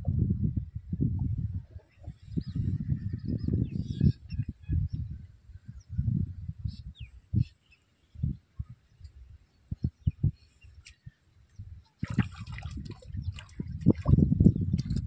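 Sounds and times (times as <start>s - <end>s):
water splashing and sloshing: 12.0s - 15.0s.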